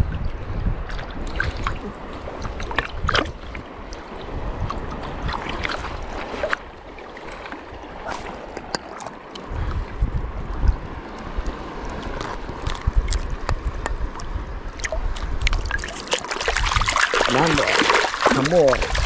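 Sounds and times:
wind buffeting microphone: 0.0s - 8.5s, 9.4s - 19.0s
seawater sloshing and lapping: 0.8s - 9.9s, 14.8s - 19.0s.

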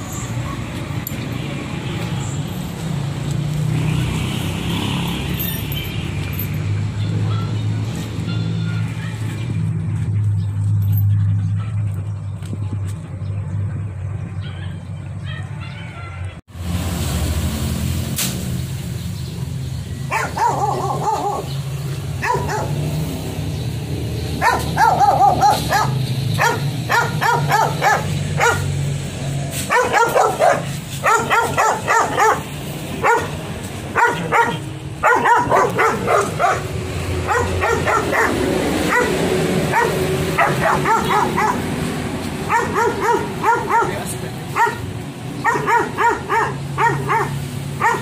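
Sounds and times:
dog barking sharply: 20.1s - 21.5s, 22.2s - 22.8s, 24.4s - 28.7s, 29.7s - 41.7s, 42.5s - 48.0s.

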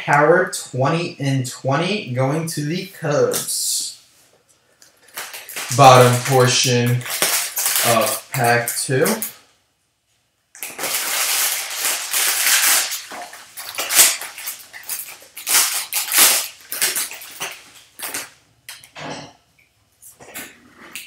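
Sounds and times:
foil wrapper crinkling and tearing: 4.9s - 9.4s, 10.5s - 18.4s.

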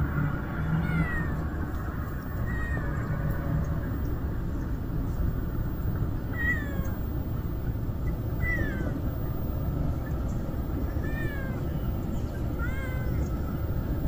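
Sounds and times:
cat meowing: 0.7s - 1.4s, 2.4s - 3.0s, 6.3s - 7.0s, 8.4s - 9.0s, 11.0s - 11.6s, 12.6s - 13.3s.

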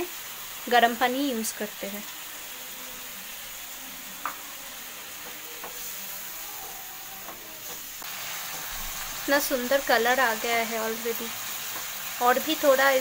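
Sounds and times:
food sizzling in a frying pan: 0.0s - 13.0s.

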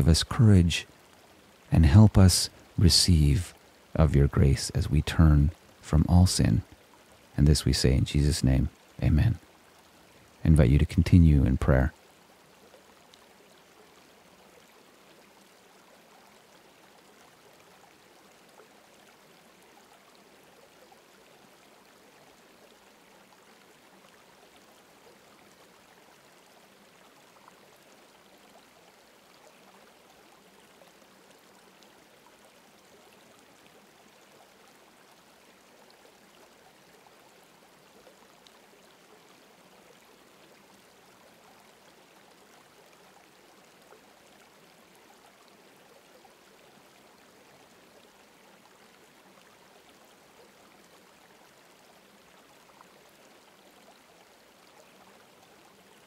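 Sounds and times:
faint running water: 0.0s - 56.0s.

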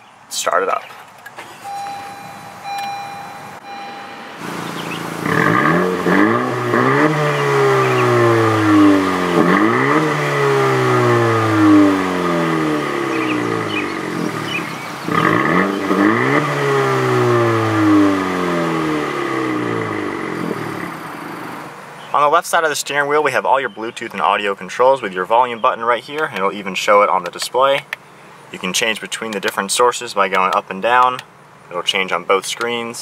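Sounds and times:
car engine revving: 1.4s - 21.9s.

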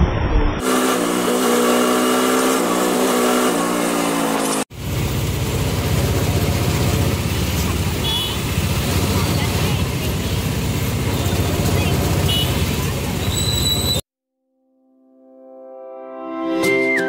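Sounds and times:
vehicle rumble: 0.6s - 14.0s.

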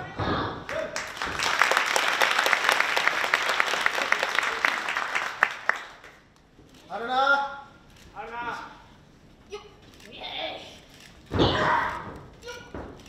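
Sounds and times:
crowd applauding and clapping: 0.7s - 6.3s.

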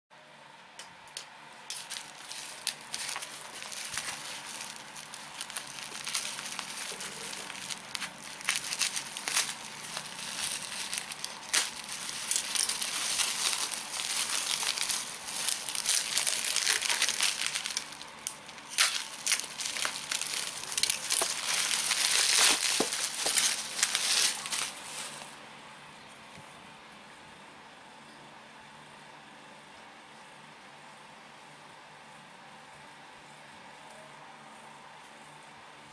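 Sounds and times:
bubble wrap crinkling and crackling: 1.7s - 25.4s.

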